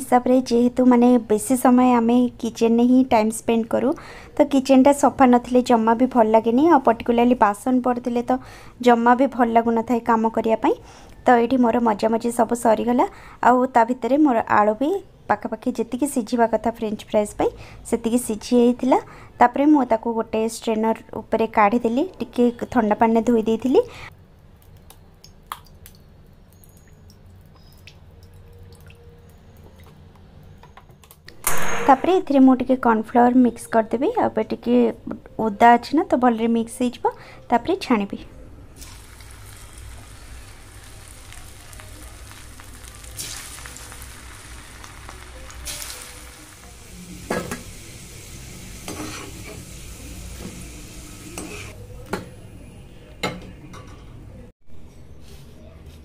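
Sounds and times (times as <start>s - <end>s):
water dripping: 24.6s - 30.0s
fries sizzling in oil: 38.8s - 51.8s.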